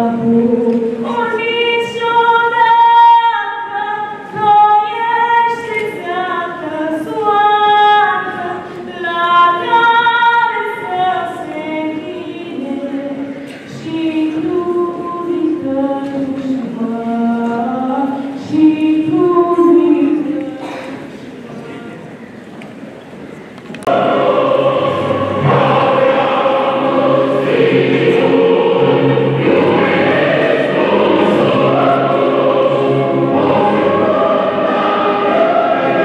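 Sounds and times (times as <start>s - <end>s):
girl singing unaccompanied: 0.0s - 20.6s.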